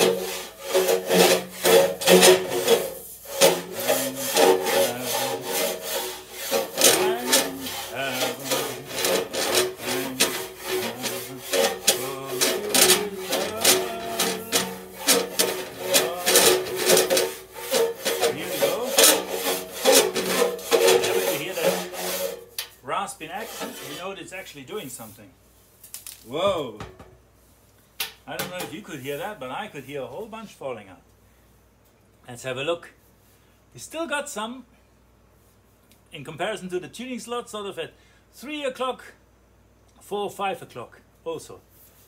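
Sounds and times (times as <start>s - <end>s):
metal pipe ringing: 0.0s - 22.4s
rasp scraping metal pipe: 0.0s - 24.2s.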